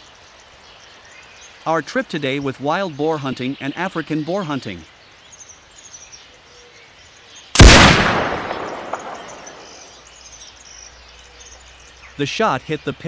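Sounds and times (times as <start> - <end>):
loud gunshot with echo: 7.6 - 9.9.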